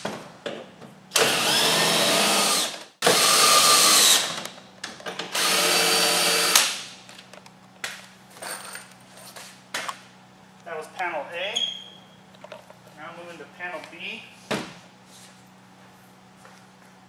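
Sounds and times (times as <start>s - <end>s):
cordless drill whirring: 1.2s - 4.5s, 5.3s - 6.6s.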